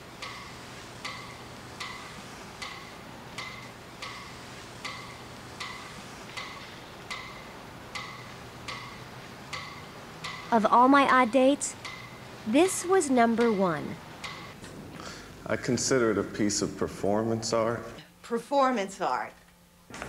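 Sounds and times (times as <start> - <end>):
faint steady hum: 0.0 - 20.0
slow ringing ticks: 0.2 - 10.8, 11.7 - 14.6.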